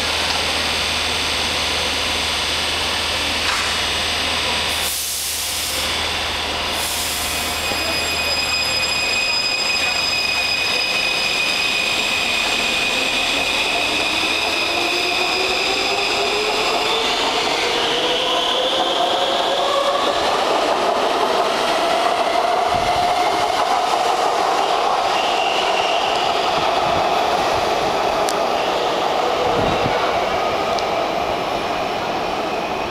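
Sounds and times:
air hiss: 4.7s - 5.9s, 6.7s - 7.6s.

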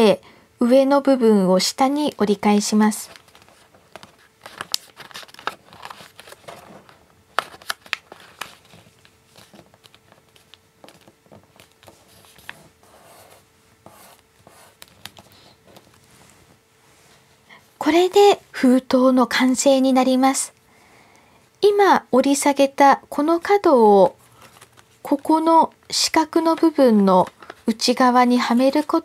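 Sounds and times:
soft paper clicks and crackles: 2.9s - 12.8s, 14.2s - 16.0s, 24.2s - 29.0s
paper rustling and crinkling: 2.9s - 13.3s, 14.2s - 16.5s, 24.1s - 25.4s, 26.4s - 29.0s.

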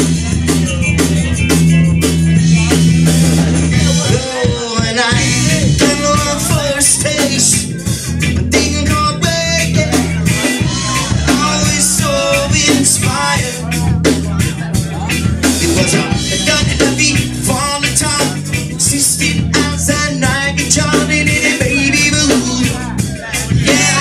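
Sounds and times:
punk reggae band playing: 0.0s - 24.0s
lead singer's vocal: 0.6s - 24.0s.

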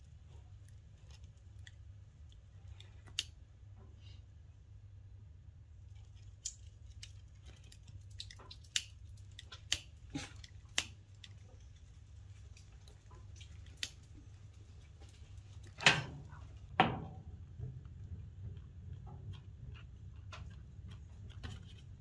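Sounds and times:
sticks clicking in wood stove: 3.1s - 3.4s, 8.2s - 11.4s.

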